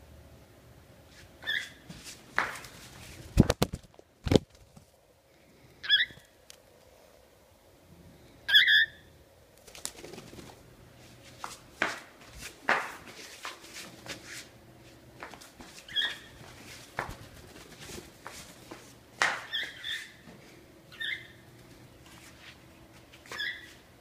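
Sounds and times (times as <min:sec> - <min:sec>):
cockatiel chirping: 0:05.8 - 0:06.2, 0:08.5 - 0:09.0, 0:15.9 - 0:16.3, 0:19.5 - 0:20.2, 0:20.9 - 0:21.4, 0:23.4 - 0:23.7.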